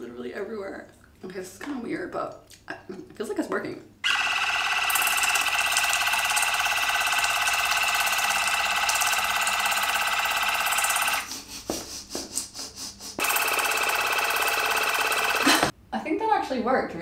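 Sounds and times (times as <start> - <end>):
water flosser pump buzzing: 4.0 - 11.3, 13.2 - 15.7.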